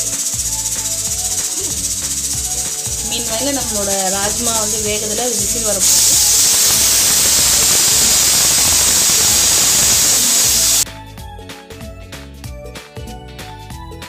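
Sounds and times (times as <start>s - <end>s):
pressure cooker steam hiss: 0.0s - 10.8s
background music: 0.0s - 14.0s.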